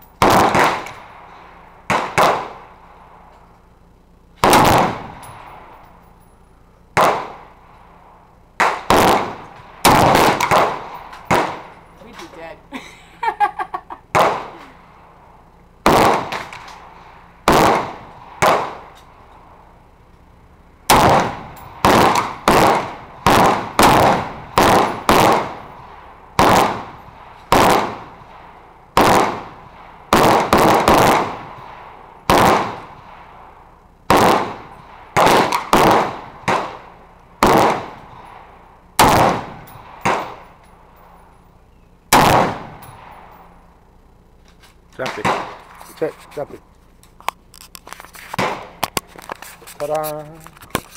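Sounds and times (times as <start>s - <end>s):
rifle shots: 0.2s - 3.4s, 4.4s - 6.2s, 6.9s - 12.6s, 14.1s - 15.2s, 15.8s - 20.0s, 20.8s - 41.4s, 42.1s - 43.9s, 45.0s - 46.6s, 48.4s - 49.1s.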